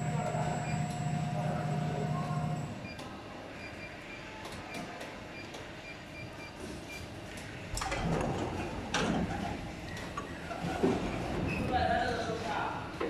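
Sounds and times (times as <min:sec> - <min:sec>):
machine hum: 0:00.0 - 0:02.8.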